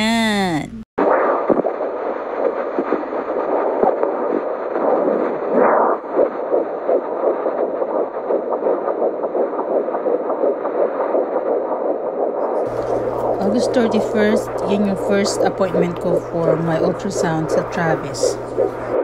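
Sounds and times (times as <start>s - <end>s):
fetal heartbeat whooshing pulse: 1.0s - 19.0s.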